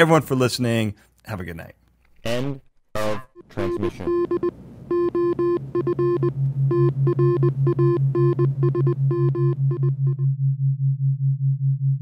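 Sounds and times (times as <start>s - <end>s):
synthesized beeps: 3.0s - 10.2s
pulsing low synth tone: 5.0s - 12.0s.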